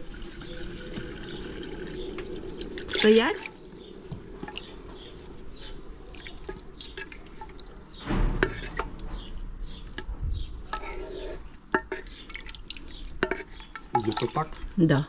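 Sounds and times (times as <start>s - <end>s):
ladle stirring stew: 0.3s - 14.8s.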